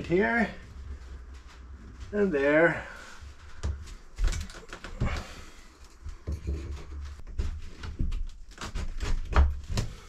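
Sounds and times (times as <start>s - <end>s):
wood knocking and scraping: 3.6s - 10.0s.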